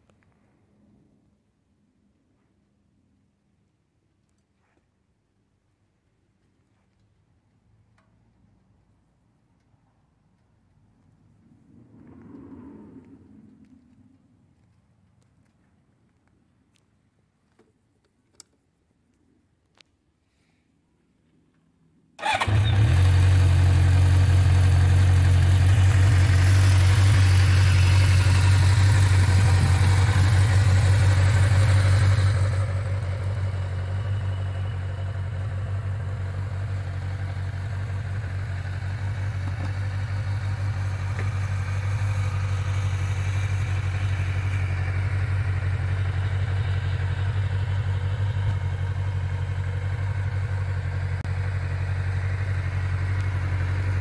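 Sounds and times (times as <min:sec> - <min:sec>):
motorcycle engine starting and idling: 0:22.2 - 0:54.0.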